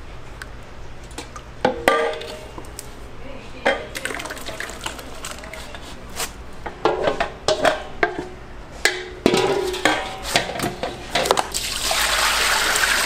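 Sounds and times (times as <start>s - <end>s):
metal bowls clanking: 3.7s - 5.8s, 6.8s - 11.5s.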